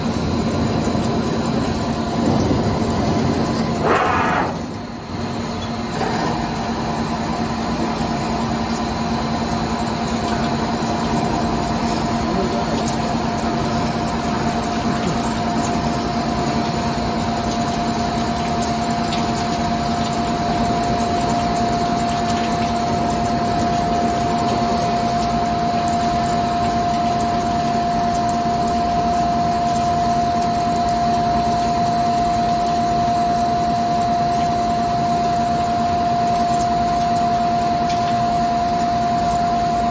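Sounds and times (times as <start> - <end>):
steady machine whine: 0.0 - 39.9
lathe machining noise: 3.8 - 4.7.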